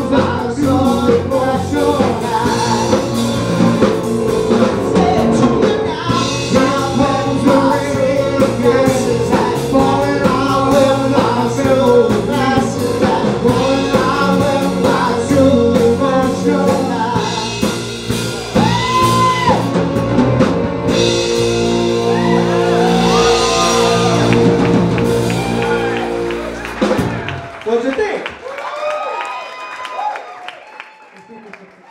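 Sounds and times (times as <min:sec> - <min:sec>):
man singing: 0:00.0 - 0:03.9, 0:04.5 - 0:17.9
drum kit with cymbals: 0:00.0 - 0:27.4
bass guitar: 0:00.0 - 0:27.7
keyboard: 0:00.0 - 0:28.2.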